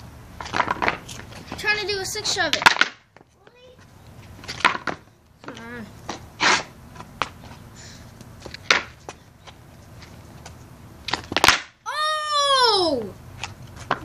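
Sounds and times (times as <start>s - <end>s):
skateboard clacking on concrete: 0.4s - 3.8s, 4.4s - 7.4s, 10.4s - 11.7s, 13.4s - 14.0s.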